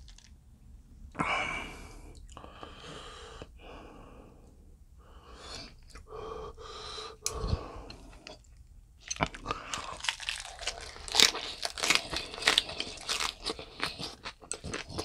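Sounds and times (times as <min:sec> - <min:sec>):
person breathing: 0:01.2 - 0:08.4.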